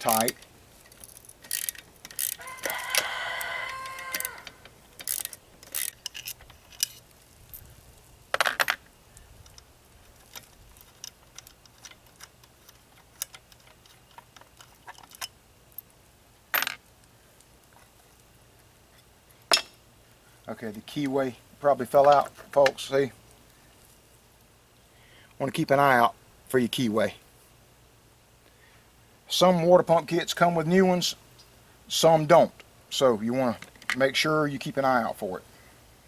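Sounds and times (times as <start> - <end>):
ratchet clicking: 0.1 - 7.0
rooster crowing: 2.3 - 4.7
metal clinks and knocks: 8.3 - 8.9, 9.5 - 15.9, 16.5 - 16.8.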